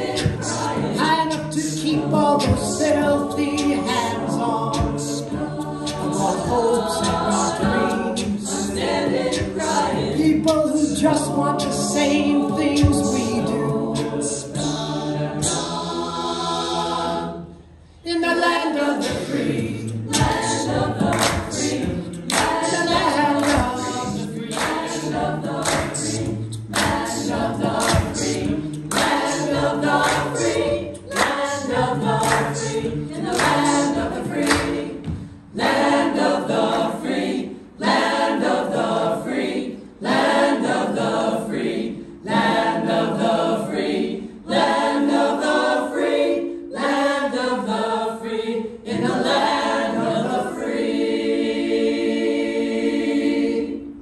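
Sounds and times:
mixed choir singing a cappella: 0.0s - 54.0s
singers breathing: 35.1s - 35.5s.

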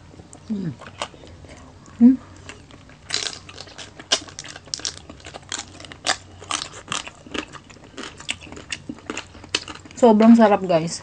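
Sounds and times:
chewing and crunching crisp pork: 0.3s - 10.7s.

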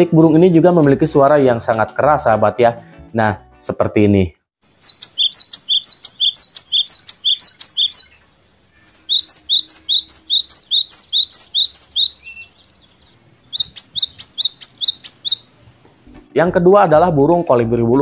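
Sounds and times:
bird singing two-note phrase: 4.8s - 15.5s.

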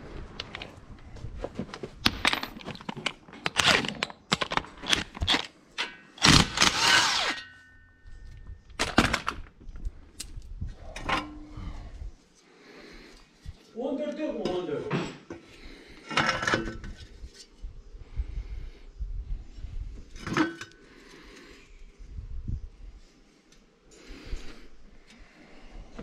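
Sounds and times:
cordless drill running: 6.2s - 7.4s.

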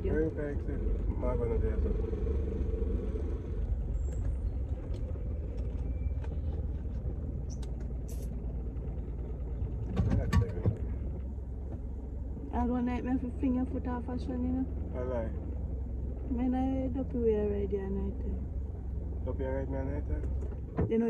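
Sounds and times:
car engine and road noise: 0.0s - 21.0s.

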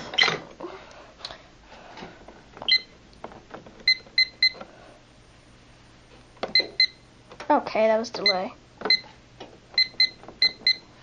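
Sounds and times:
keypad electronic beeps: 2.7s - 2.9s, 3.9s - 4.6s, 6.5s - 7.0s, 8.2s - 9.1s, 9.8s - 10.8s.

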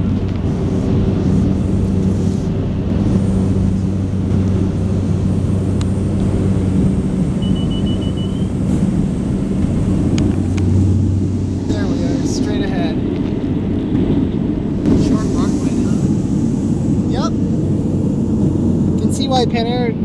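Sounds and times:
plane engines and propellers droning: 0.0s - 20.0s
high beeps: 7.4s - 8.6s.

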